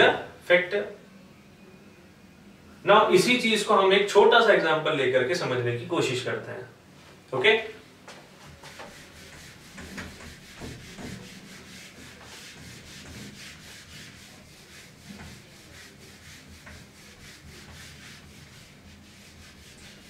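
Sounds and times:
eraser scrubbing whiteboard: 0:08.4 - 0:20.0.

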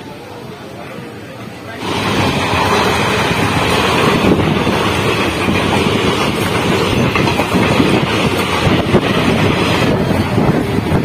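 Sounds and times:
train wheels rolling on rails: 0:01.4 - 0:11.0
wind blowing across microphone: 0:01.8 - 0:11.0.

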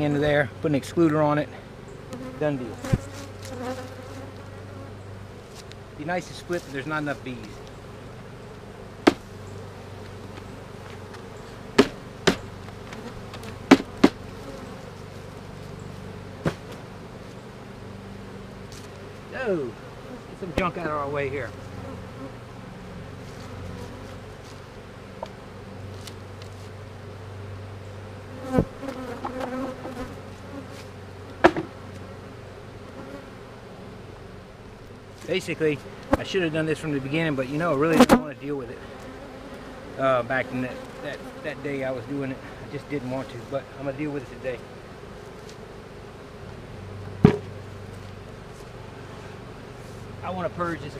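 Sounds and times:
honeybees humming: 0:00.0 - 0:50.9
wooden hive parts knocking: 0:09.0 - 0:09.4, 0:10.0 - 0:14.3, 0:16.4 - 0:16.9, 0:31.4 - 0:31.8, 0:47.0 - 0:47.6.

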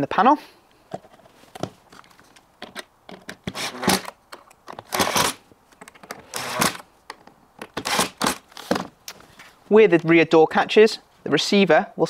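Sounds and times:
cordless drill driving screws: 0:03.4 - 0:04.1, 0:04.8 - 0:05.4, 0:06.3 - 0:06.8, 0:07.8 - 0:08.7.

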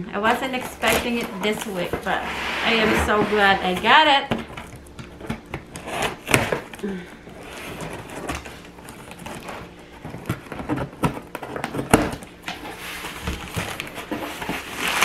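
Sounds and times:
scrapes and knocks: 0:00.4 - 0:05.4
packing tape peeled from cardboard: 0:04.6 - 0:15.0.

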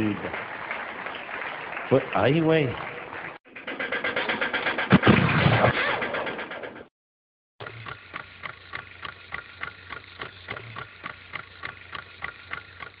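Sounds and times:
noisy sound effect: 0:03.6 - 0:06.3
mechanical ticking: 0:07.6 - 0:13.0.

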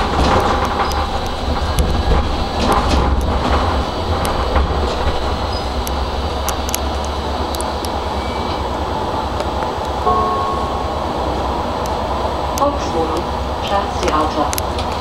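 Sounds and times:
sharp clicks and rattles: 0:00.0 - 0:08.1
tram wheels rumbling: 0:00.0 - 0:15.0.

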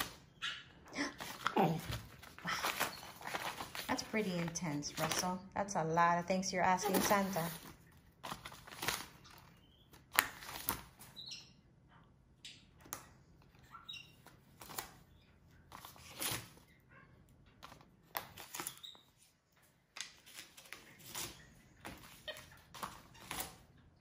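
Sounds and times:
paper rustling and tearing: 0:01.1 - 0:05.4, 0:06.8 - 0:09.5.

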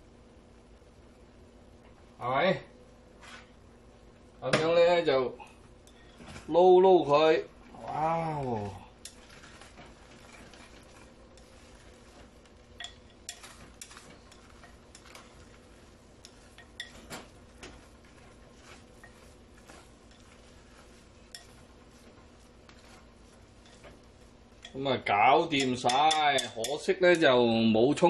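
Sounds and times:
chopsticks scraping a clay pot: 0:07.8 - 0:27.2.

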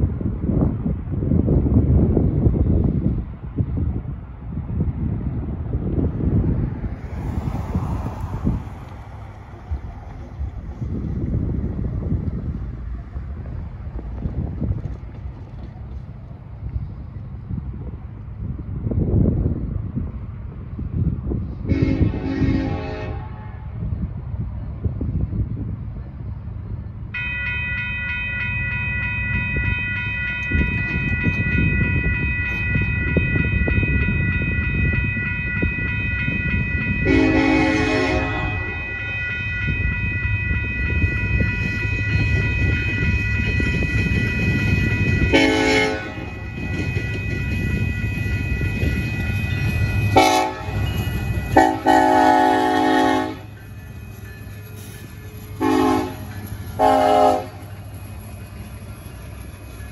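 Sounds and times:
locomotive rumble: 0:00.0 - 0:59.9
train horn blowing: 0:21.6 - 0:23.8, 0:37.0 - 0:39.1, 0:40.8 - 0:53.5, 0:55.6 - 0:57.7
crossing warning bell ringing: 0:26.8 - 0:59.9.

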